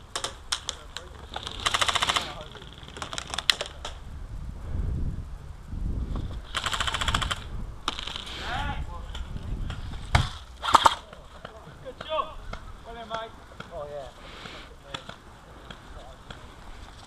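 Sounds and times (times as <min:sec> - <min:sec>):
airsoft rifle full-auto burst: 0:01.3 - 0:03.6, 0:06.4 - 0:08.4, 0:10.6 - 0:11.1.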